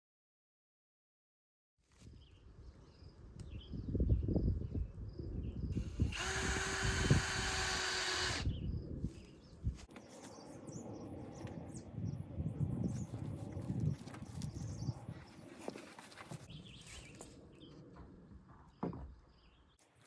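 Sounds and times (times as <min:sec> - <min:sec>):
cordless power drill running: 0:05.8 - 0:08.6.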